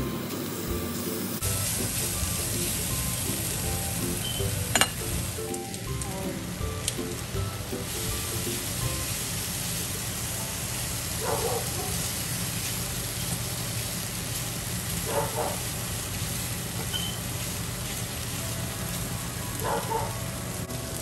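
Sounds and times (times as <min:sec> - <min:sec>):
shrimp sizzling in frying pan: 0:00.2 - 0:21.0
metal tongs clattering: 0:04.7 - 0:05.0.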